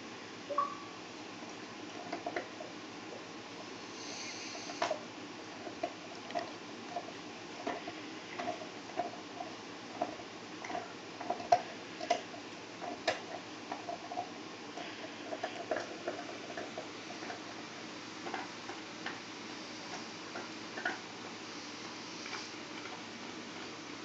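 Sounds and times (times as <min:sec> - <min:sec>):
fingernails scratching snake scales: 0:04.0 - 0:04.9.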